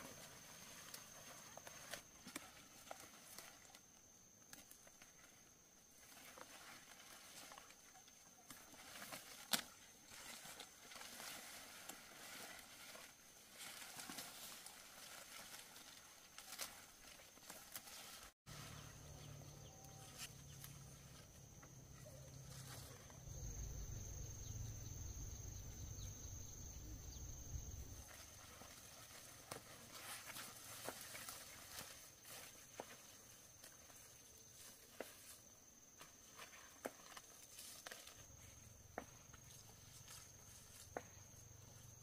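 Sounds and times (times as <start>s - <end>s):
rustling and snapping of leaves: 8.4s - 18.3s.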